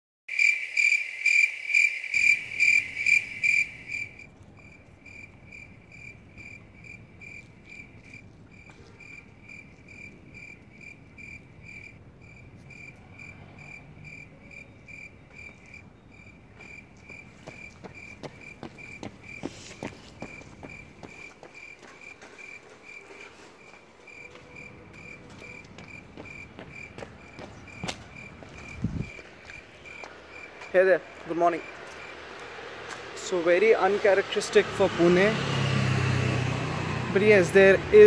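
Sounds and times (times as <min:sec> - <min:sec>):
cricket chirping: 0:00.3 - 0:32.7.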